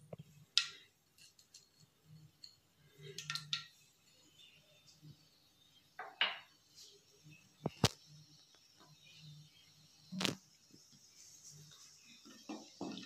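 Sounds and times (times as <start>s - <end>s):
spices dropped into hot oil: 0.0s - 3.8s.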